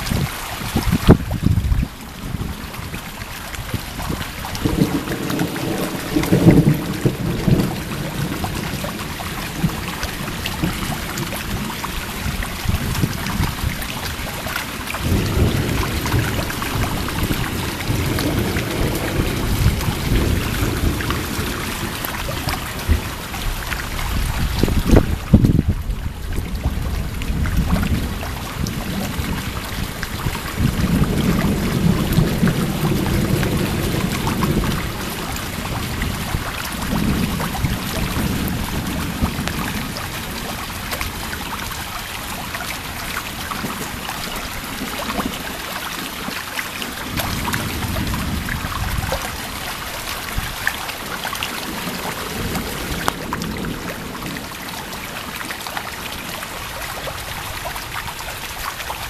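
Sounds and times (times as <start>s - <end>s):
thunder rumbling: 0.0s - 41.9s, 46.9s - 55.4s
heavy rain: 0.0s - 59.0s.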